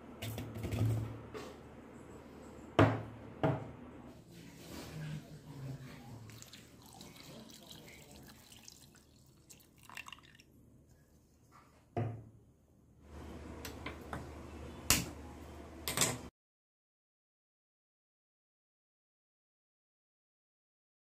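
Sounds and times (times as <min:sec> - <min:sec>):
water pouring into a pot: 0:06.1 - 0:10.5.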